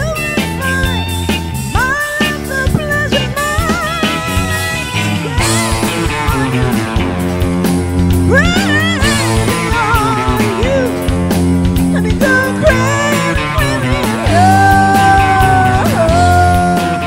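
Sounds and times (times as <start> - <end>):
bass and drums: 0.0 - 17.0
electric guitar lead: 0.0 - 17.0.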